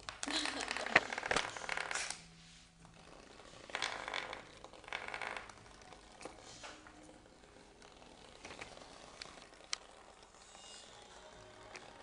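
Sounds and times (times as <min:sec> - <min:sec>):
bristles rattling on wood: 0:03.6 - 0:06.4.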